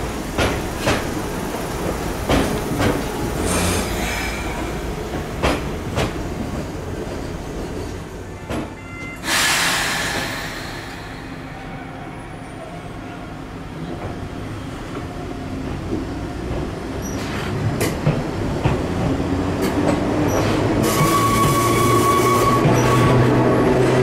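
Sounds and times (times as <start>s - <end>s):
train wheels clacking on rail joints: 0.0s - 3.9s, 4.5s - 7.2s, 15.0s - 24.0s.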